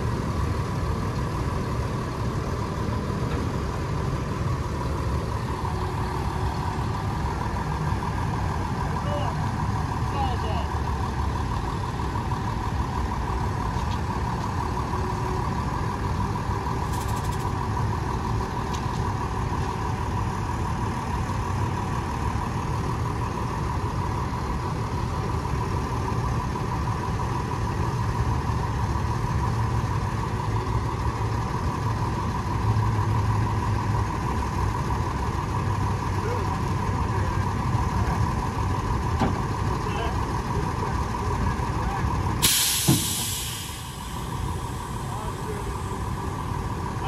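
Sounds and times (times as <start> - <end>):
truck engine running: 0.0 - 47.0.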